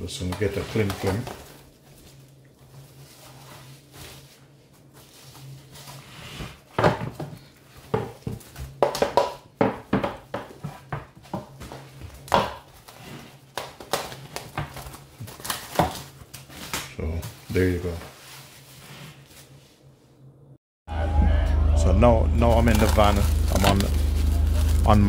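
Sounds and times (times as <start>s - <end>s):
cling film crinkling: 0.4s - 6.0s, 22.4s - 25.0s.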